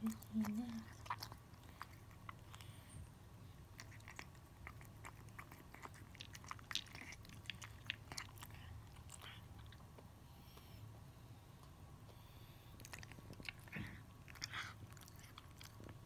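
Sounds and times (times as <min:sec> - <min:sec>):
cat crunching dry kibble: 0:03.7 - 0:09.4.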